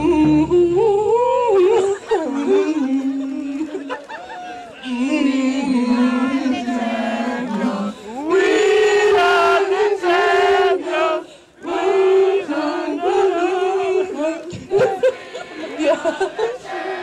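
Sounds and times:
woman humming: 0:00.0 - 0:03.8.

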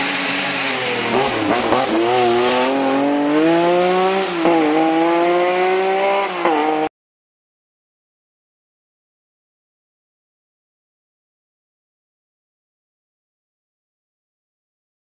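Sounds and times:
race car engine accelerating: 0:00.0 - 0:06.9.

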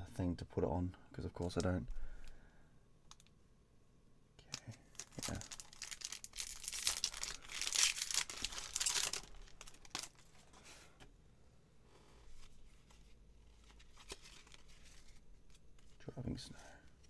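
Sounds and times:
foil wrapper tearing and crinkling: 0:04.9 - 0:10.2
faint card rustling: 0:11.9 - 0:17.0.

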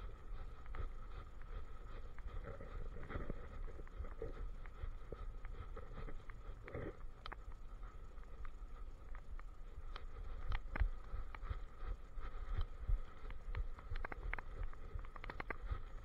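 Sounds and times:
faint steady tone: 0:00.0 - 0:16.0
camera handling rumble: 0:13.3 - 0:16.0.

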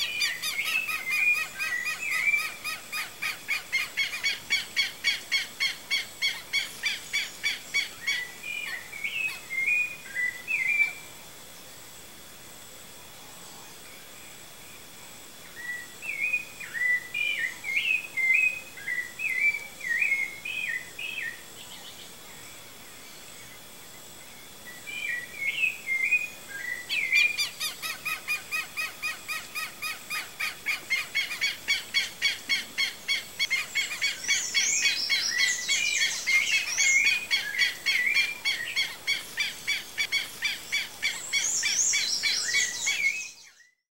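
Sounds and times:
birds singing: 0:00.0 - 0:11.1, 0:14.8 - 0:43.8
higher bird chirps: 0:25.0 - 0:43.8.

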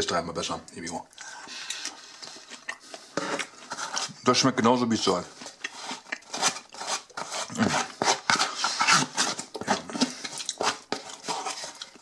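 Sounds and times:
chewing sounds: 0:01.1 - 0:04.1
metal fork scraping cardboard box: 0:03.1 - 0:04.2, 0:05.0 - 0:12.0.

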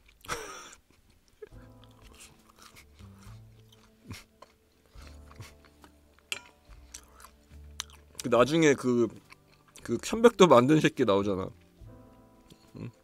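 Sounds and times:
person chewing and crunching: 0:00.0 - 0:08.4, 0:09.0 - 0:10.0
quiet background music: 0:00.0 - 0:13.0.

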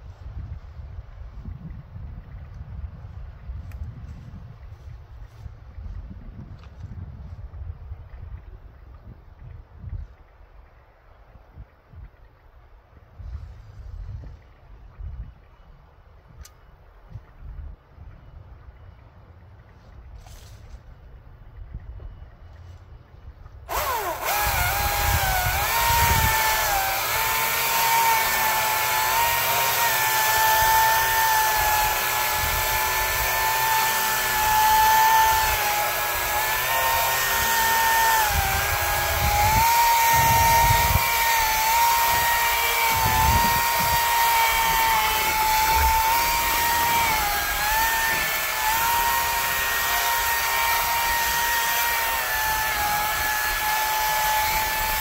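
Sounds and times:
power tool motor whining: 0:23.7 - 0:55.0.

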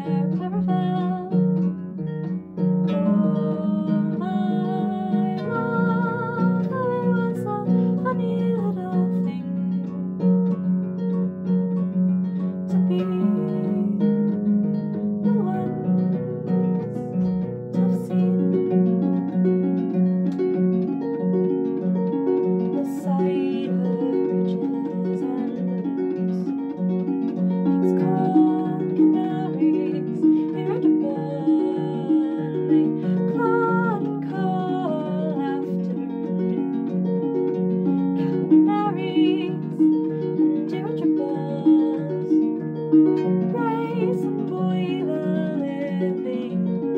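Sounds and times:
woman singing: 0:00.0 - 0:01.8, 0:02.8 - 0:09.8, 0:12.5 - 0:14.4, 0:15.2 - 0:19.1, 0:22.6 - 0:26.5, 0:27.6 - 0:36.7, 0:38.2 - 0:46.9.

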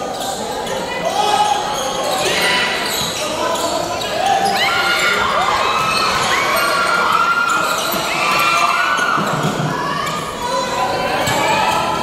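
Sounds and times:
sneakers squeaking on hardwood: 0:00.0 - 0:10.4
crowd cheering: 0:04.4 - 0:12.0.

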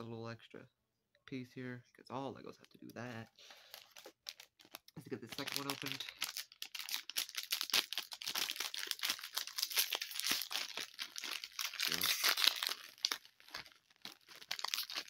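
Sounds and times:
plastic packet crinkling: 0:03.4 - 0:15.0.

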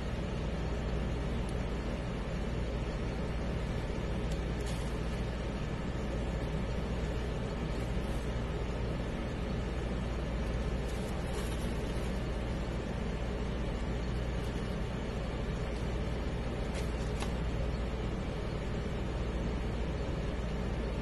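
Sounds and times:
low hum and rumble: 0:00.0 - 0:21.0
faint short rustles: 0:10.8 - 0:12.2.

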